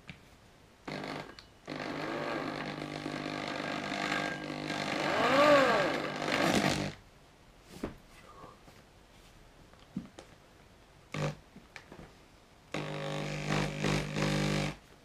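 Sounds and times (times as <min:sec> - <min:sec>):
power drill boring through plastic: 0:00.9 - 0:07.0, 0:12.8 - 0:14.8.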